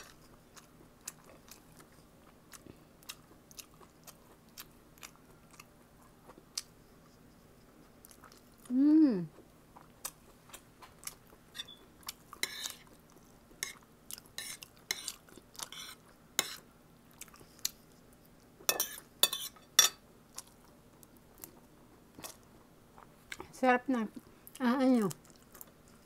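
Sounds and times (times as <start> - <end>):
chewing: 0.0 - 8.7, 9.3 - 19.1, 20.3 - 23.5, 24.2 - 26.0
spoon clinking and scraping on plate: 11.6 - 11.8, 12.4 - 12.8, 15.7 - 16.6, 18.7 - 20.0.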